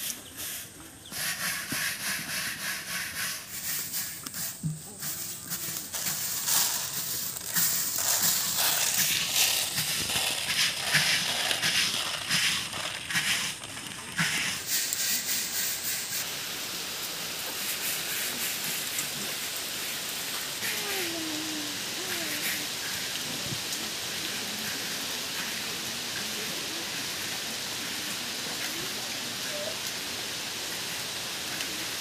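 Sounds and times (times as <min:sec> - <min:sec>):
rain hissing: 0:00.0 - 0:32.0
brush scraping pieces in pot: 0:00.4 - 0:15.0.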